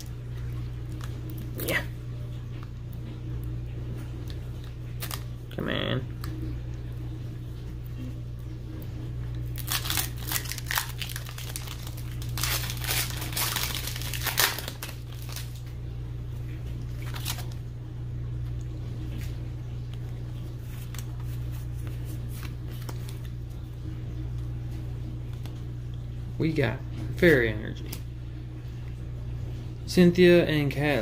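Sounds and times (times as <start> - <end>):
low hum: 0.0 - 31.0
foil wrapper crinkling and tearing: 4.9 - 5.3, 9.5 - 15.7, 17.0 - 17.6, 20.6 - 23.4.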